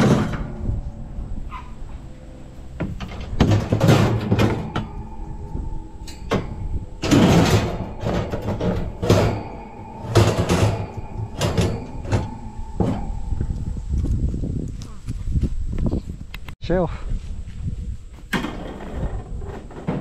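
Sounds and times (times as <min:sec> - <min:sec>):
metal wire racks clattering: 0:02.8 - 0:13.3.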